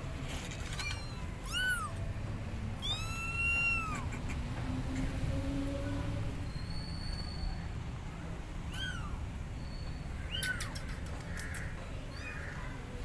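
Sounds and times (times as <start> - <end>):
kittens mewing: 0.6 - 2.1, 2.8 - 5.1, 8.7 - 9.3.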